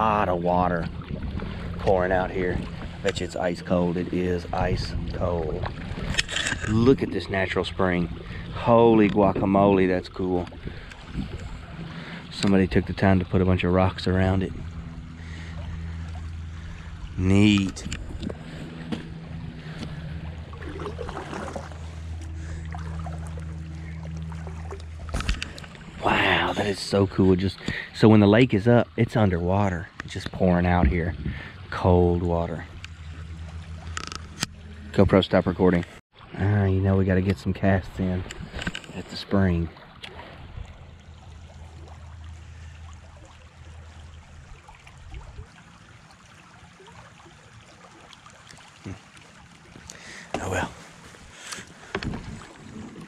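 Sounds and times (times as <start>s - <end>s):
low rumble: 0.0s - 36.8s
steady low hum: 0.0s - 47.5s
water splashing off paddle: 17.6s - 27.0s
paddle clicks and knocks: 51.4s - 53.0s.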